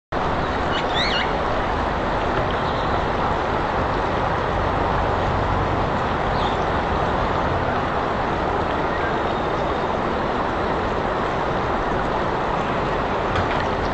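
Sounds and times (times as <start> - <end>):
rushing background noise: 0.2 - 13.9
gliding bird chirps: 0.6 - 1.4.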